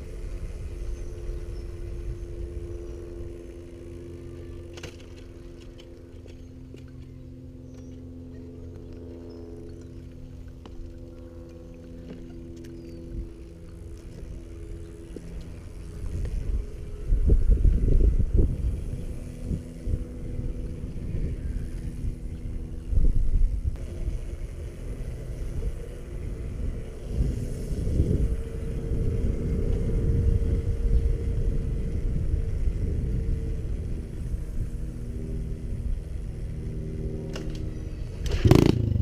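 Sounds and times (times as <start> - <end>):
wind rumble on microphone: 0.0 - 4.3, 9.4 - 39.0
motorbike engine revving: 15.8 - 39.0.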